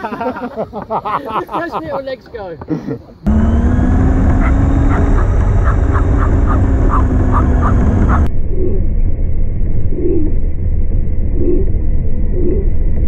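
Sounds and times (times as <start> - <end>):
motor whine: 3.3 - 8.3
wind buffeting and rumble: 3.3 - 13.0.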